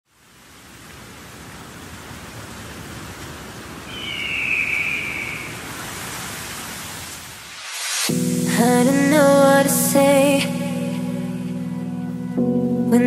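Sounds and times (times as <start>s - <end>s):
steady noise hiss: 0.1s - 13.0s.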